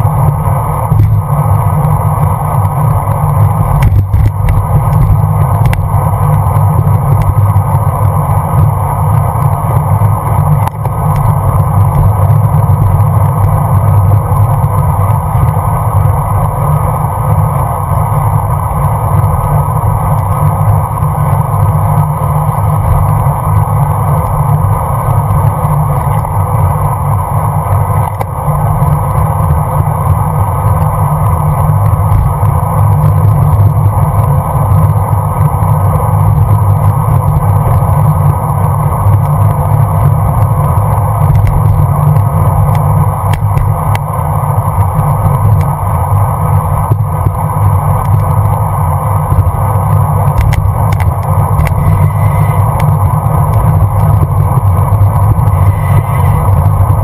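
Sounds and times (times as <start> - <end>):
road noise: 0.0 - 57.0
wind rush: 0.0 - 57.0.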